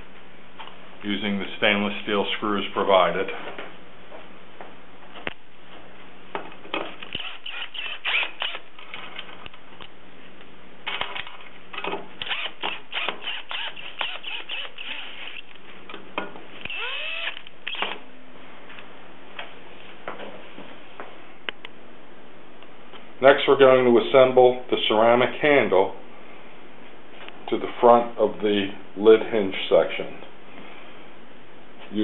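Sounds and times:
drill motor whir: 0:07.0 - 0:08.6, 0:12.2 - 0:15.5, 0:16.6 - 0:18.0
drill-driver clicking: 0:07.0 - 0:08.6, 0:12.2 - 0:15.5, 0:16.6 - 0:18.0.

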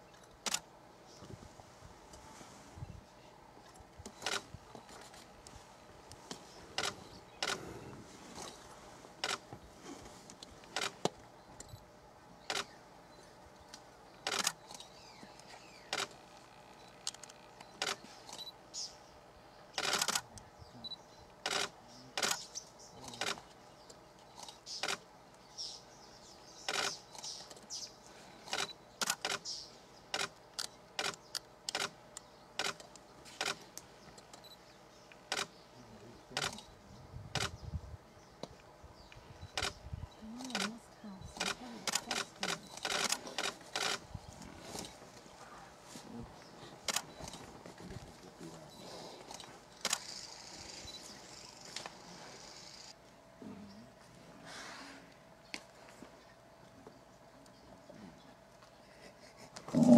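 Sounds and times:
camera shutter clicks: 0:49.8 - 0:50.3.

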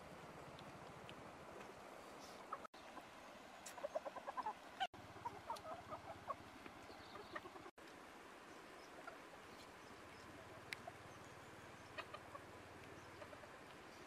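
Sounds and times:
faint background hiss: 0:00.0 - 0:14.0
chickens clucking: 0:02.2 - 0:07.8, 0:08.8 - 0:11.1, 0:11.7 - 0:14.0.

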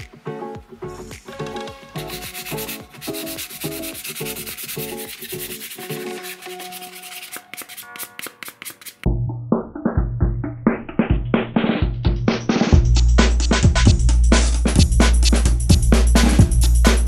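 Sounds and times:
sandpaper scraping wood: 0:02.0 - 0:09.1.

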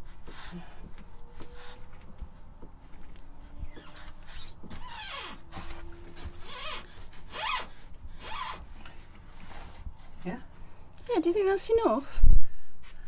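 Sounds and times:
plastic fitting squeaking: 0:03.7 - 0:08.7.

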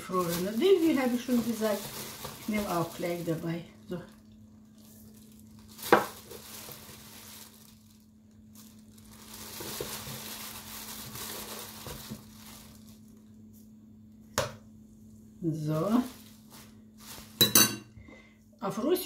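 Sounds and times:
soft rustling: 0:15.8 - 0:17.4.

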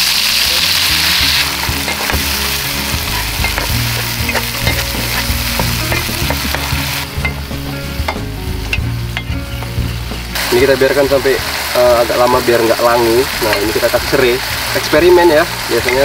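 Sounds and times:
paste sizzling in hot oil: 0:00.0 - 0:16.0
metal spatula scraping a pan: 0:01.1 - 0:07.4.

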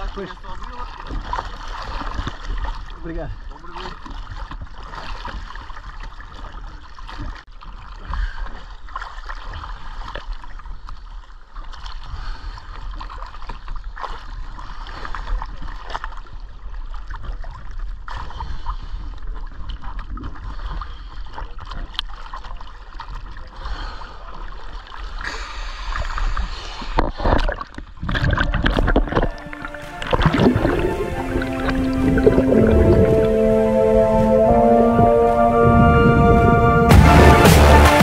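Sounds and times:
water sloshing and gurgling: 0:00.0 - 0:38.0
steady low rumble: 0:28.9 - 0:38.0.

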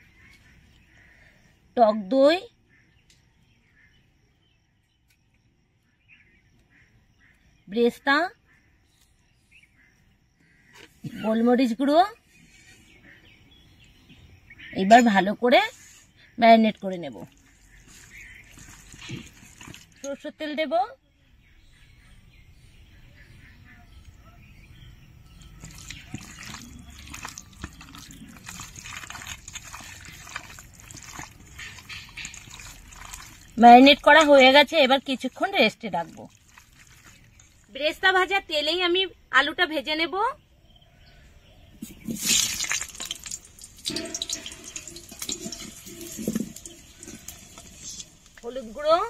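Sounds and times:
wet squishing of meat mixed by hand: 0:17.2 - 0:20.1, 0:25.5 - 0:34.5, 0:36.0 - 0:37.7, 0:41.9 - 0:48.4
crackling oil spatter: 0:25.6 - 0:37.7, 0:42.0 - 0:48.6
potatoes sizzling in hot oil: 0:28.6 - 0:37.3, 0:42.1 - 0:49.0.

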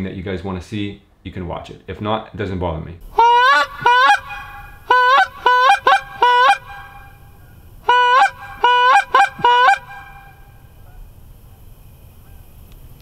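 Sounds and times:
goose call honks: 0:03.1 - 0:11.0.

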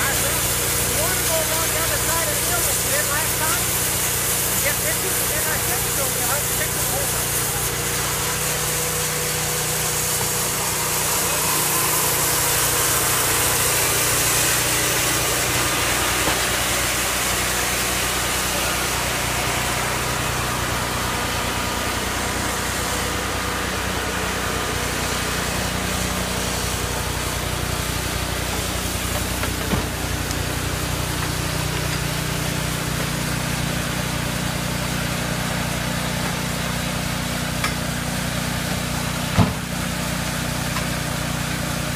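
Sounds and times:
saw cutting log: 0:00.0 - 0:41.9
sawmill engine drone: 0:00.0 - 0:41.9
short knock: 0:39.4 - 0:39.6.

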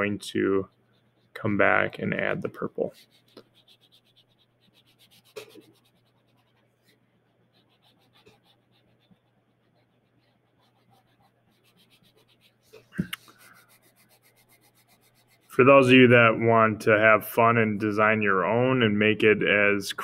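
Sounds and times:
crayon scratching on paper: 0:00.0 - 0:15.6.

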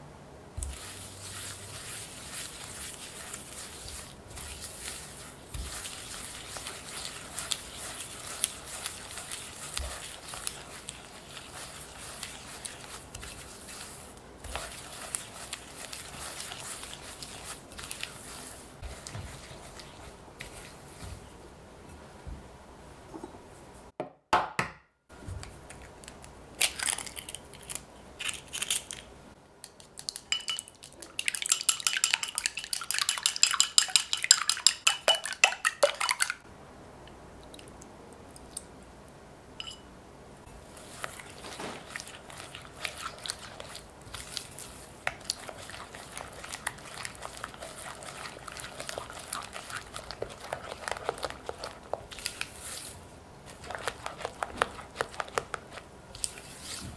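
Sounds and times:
spatula scraping batter in glass bowl: 0:00.6 - 0:21.0, 0:40.8 - 0:56.8.

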